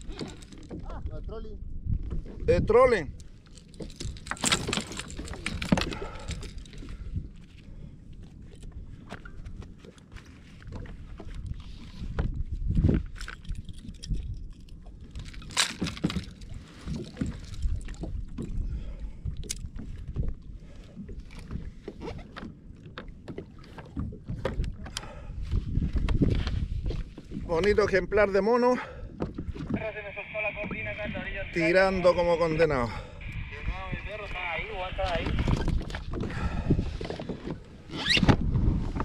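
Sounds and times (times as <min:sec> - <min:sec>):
wind rumbling on microphone: 0:00.0 - 0:23.1, 0:23.9 - 0:28.3, 0:28.9 - 0:39.0
water lapping against kayak: 0:00.0 - 0:39.0.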